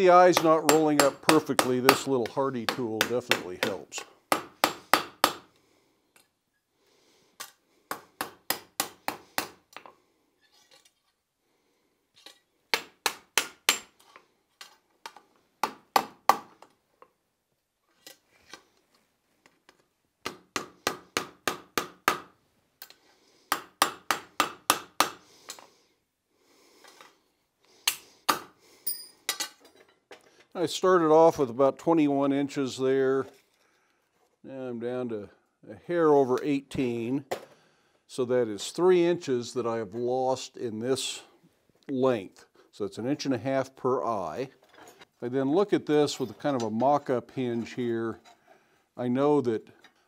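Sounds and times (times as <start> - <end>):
hammer striking hot steel on anvil: 0.4 - 2.1.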